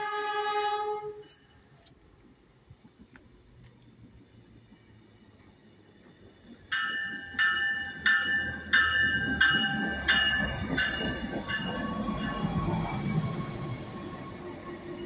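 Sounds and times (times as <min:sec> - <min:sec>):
low rumble of railcar: 0:00.0 - 0:15.0
train warning bell ringing: 0:06.7 - 0:13.7.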